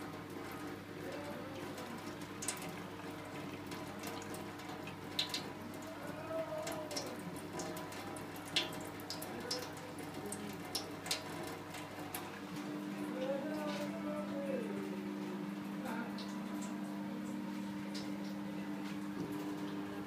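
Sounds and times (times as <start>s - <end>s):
sharp drip-like ticks: 0.0s - 5.9s, 6.6s - 12.3s, 15.9s - 19.8s
water splashing into steel sink: 1.2s - 12.4s, 15.8s - 19.9s.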